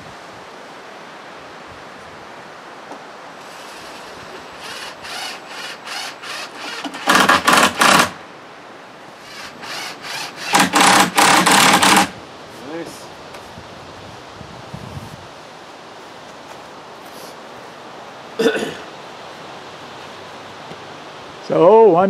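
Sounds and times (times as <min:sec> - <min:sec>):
cordless drill driving screws: 0:03.4 - 0:08.2, 0:09.2 - 0:12.2.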